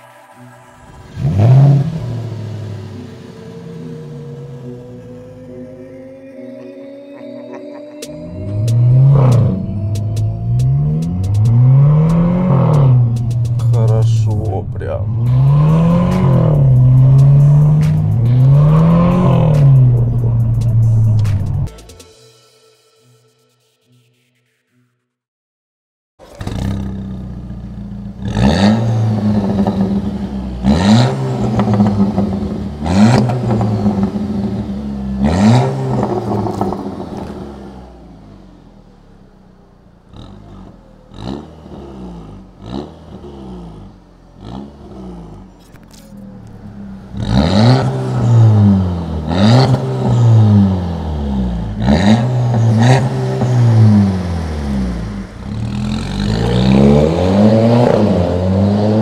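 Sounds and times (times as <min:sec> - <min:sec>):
car engine revving: 0:00.0 - 0:21.8, 0:26.2 - 0:59.0
car engine idling: 0:00.0 - 0:21.9, 0:26.2 - 0:59.0
exhaust pops: 0:08.6 - 0:21.7, 0:26.2 - 0:37.7.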